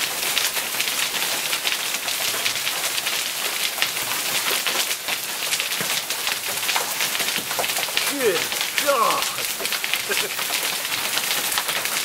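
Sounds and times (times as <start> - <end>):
hail clattering: 0.1 - 12.0
rain hissing: 6.2 - 12.0.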